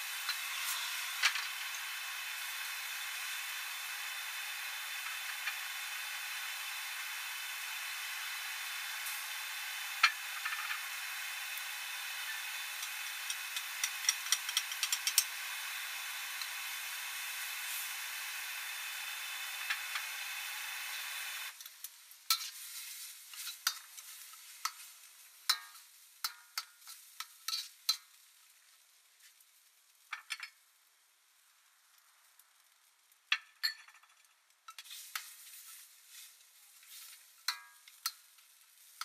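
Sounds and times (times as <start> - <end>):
spatula scraping wok: 0.0 - 21.0, 22.3 - 28.2, 34.7 - 39.0
food sizzling in a wok: 0.0 - 33.8, 34.4 - 39.0.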